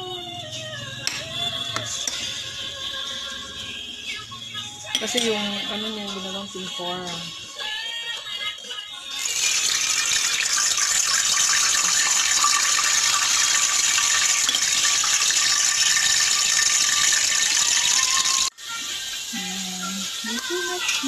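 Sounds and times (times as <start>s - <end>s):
soup boiling and bubbling: 9.1s - 18.6s.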